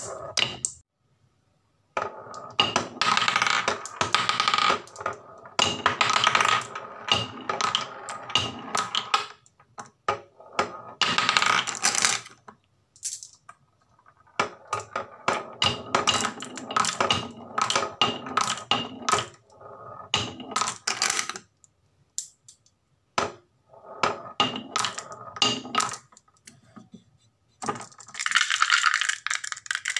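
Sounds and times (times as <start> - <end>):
marbles rolling on wood: 2.0 - 21.5, 23.2 - 26.4, 27.6 - 29.9
marbles clacking together: 13.0 - 13.6, 27.6 - 29.9.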